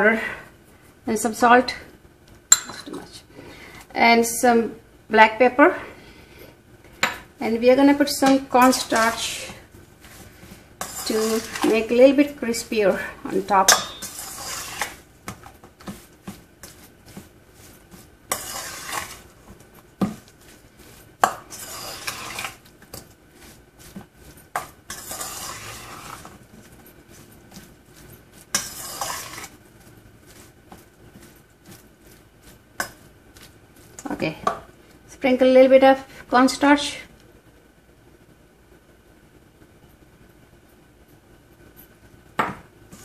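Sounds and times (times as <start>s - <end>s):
spoon scraping metal bowl: 8.2s - 9.6s, 10.8s - 12.3s, 13.3s - 29.6s
spoon clinking against bowl: 13.7s - 14.2s.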